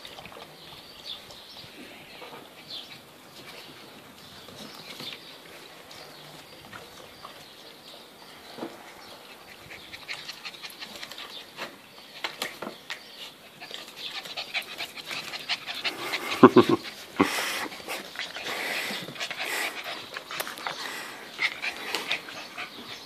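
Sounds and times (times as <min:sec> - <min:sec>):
puppies panting: 0:08.7 - 0:23.0.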